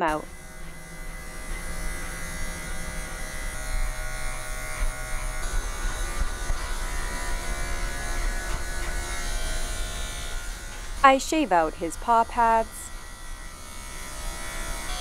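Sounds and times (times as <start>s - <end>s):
electric clipper humming: 0.0s - 15.0s.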